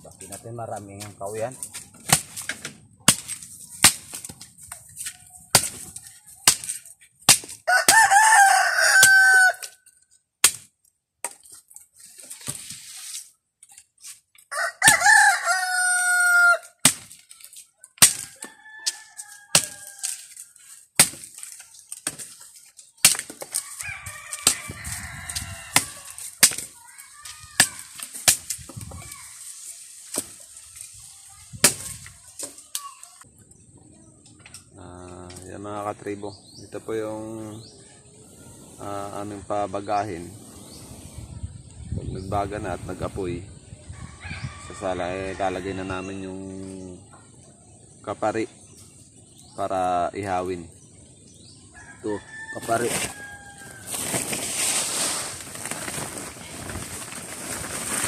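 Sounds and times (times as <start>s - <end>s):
machete chopping a branch: 1.8s - 4.5s, 5.1s - 9.7s, 10.4s - 11.5s, 16.7s - 17.4s, 18.0s - 22.4s, 23.0s - 23.7s, 24.3s - 26.8s, 27.6s - 29.1s, 30.0s - 30.4s, 31.5s - 32.8s
rooster crowing: 7.7s - 9.7s, 14.5s - 16.7s, 18.3s - 20.2s, 23.6s - 26.2s, 51.8s - 54.0s.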